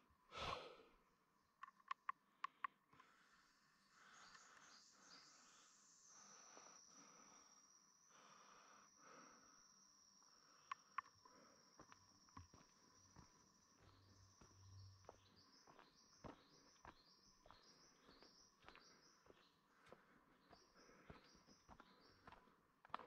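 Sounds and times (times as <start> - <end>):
high insect-like whine: 3.4 - 16.4.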